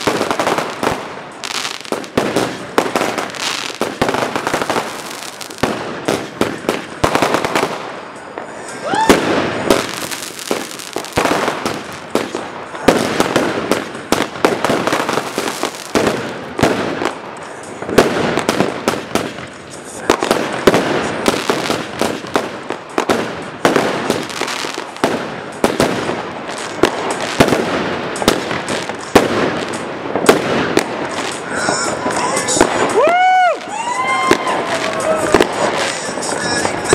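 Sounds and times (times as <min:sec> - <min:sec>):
fireworks bursting and crackling: 0:00.0 - 0:36.9.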